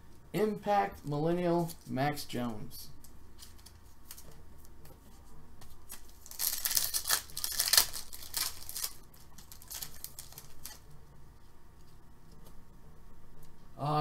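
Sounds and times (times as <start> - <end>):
foil wrapper rustling: 5.8 - 10.8
foil wrapper ripping: 5.9 - 10.8.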